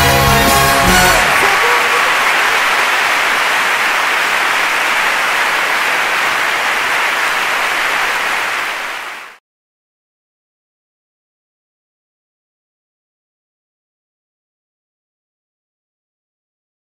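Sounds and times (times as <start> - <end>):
large audience applauding: 0.0 - 9.4.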